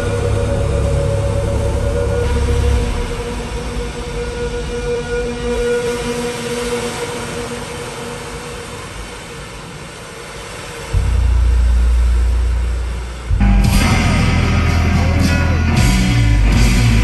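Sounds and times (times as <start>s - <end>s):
deep sustained bass tone: 0.0s - 5.5s, 11.0s - 17.0s
electronic music hissing wash: 0.0s - 17.0s.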